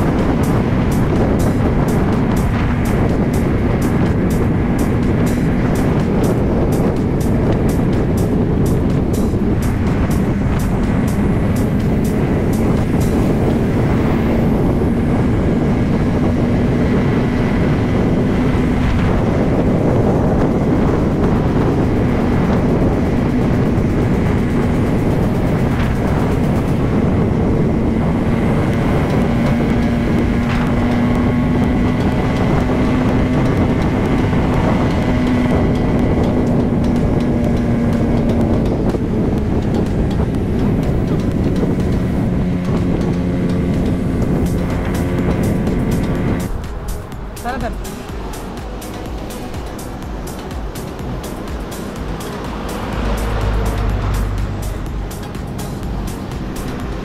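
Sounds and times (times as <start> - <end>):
motorcycle engine cruising: 0.0 - 57.0
wind rushing on microphone: 0.0 - 57.0.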